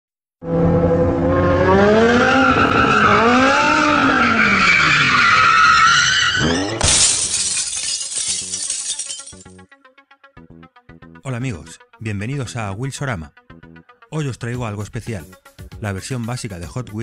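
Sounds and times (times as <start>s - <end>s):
car engine revving: 0.4s - 7.2s
crash of shattering glass: 6.4s - 9.6s.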